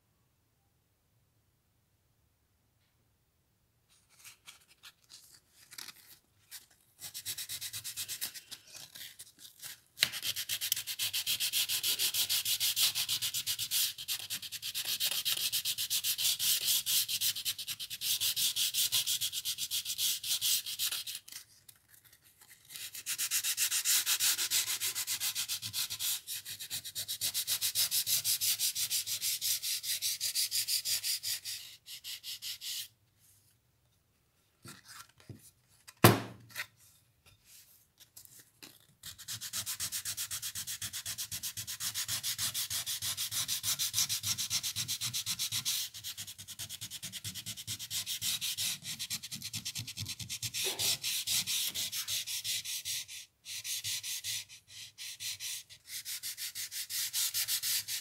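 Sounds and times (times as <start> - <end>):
hand sanding wood: 55.1 - 58.0.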